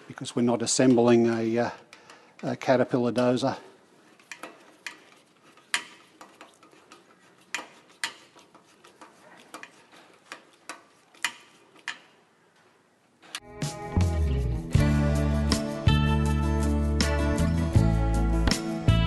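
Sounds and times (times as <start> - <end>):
tools clicking on metal basket: 4.2 - 12.2.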